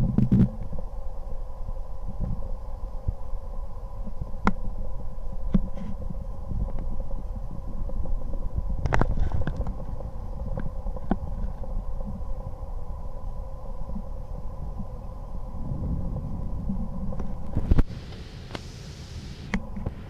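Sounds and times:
thunder rumbling: 14.2s - 18.2s.

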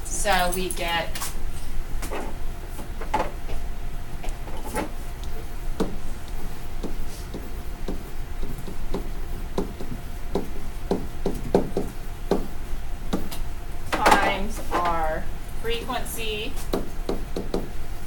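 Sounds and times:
low steady hum: 0.0s - 18.0s
pen tapping on tablet: 5.8s - 6.0s, 6.8s - 12.5s, 16.7s - 17.7s.

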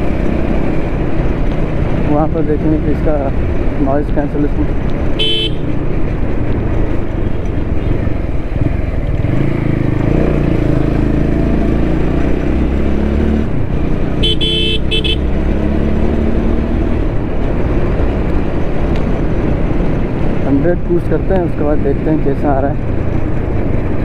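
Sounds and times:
motorcycle engine running: 0.0s - 20.8s
wind and road noise: 0.0s - 24.0s
horn beeping: 5.2s - 5.7s, 14.2s - 15.3s.

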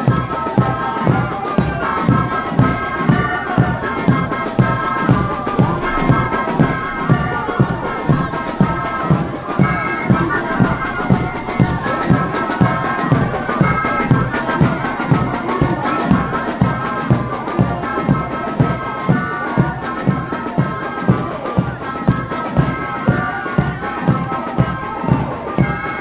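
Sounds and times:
wind instruments playing a tune: 0.0s - 26.0s
bass drum beating: 2.6s - 16.8s.

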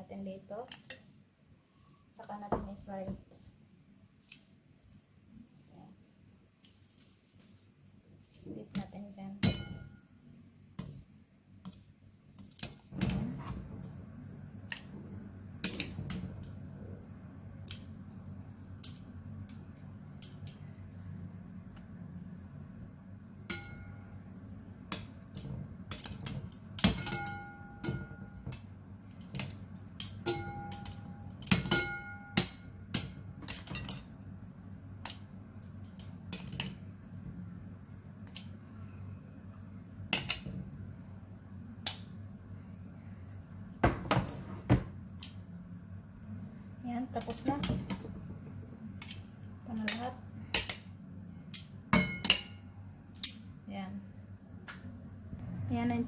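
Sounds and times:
low steady hum: 0.0s - 56.0s
glass ringing: 9.4s - 10.1s, 23.5s - 24.1s, 27.0s - 28.4s, 30.2s - 32.7s, 52.0s - 52.6s
metal tongs tapping glass bowl: 30.0s - 34.0s.

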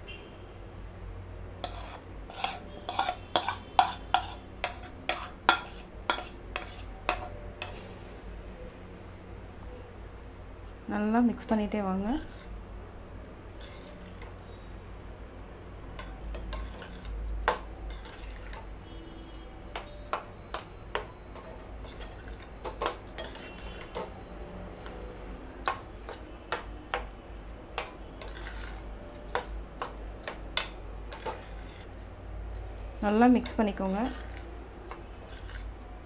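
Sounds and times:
metal spatula scraping a pan: 1.6s - 8.0s, 12.2s - 12.6s, 13.6s - 14.3s, 16.0s - 19.9s, 20.5s - 24.2s, 27.8s - 32.1s, 33.3s - 35.8s.

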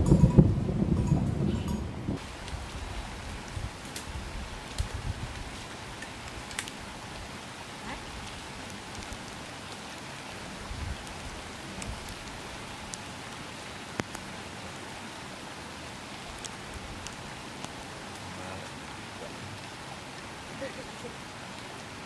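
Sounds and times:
falling water hiss: 2.2s - 22.0s
light ticks: 6.0s - 6.8s, 14.0s - 14.2s.

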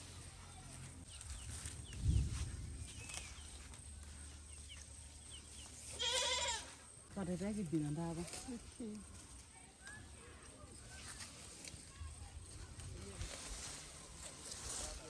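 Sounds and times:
small birds chirping: 0.0s - 6.6s
leaves rustling: 0.0s - 15.0s.

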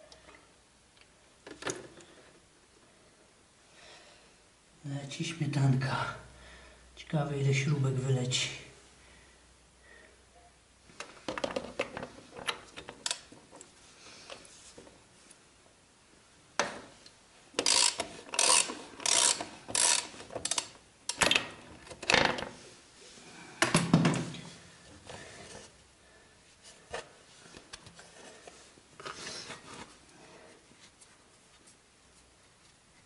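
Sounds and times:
ratchet wrench clicking: 17.6s - 20.7s.

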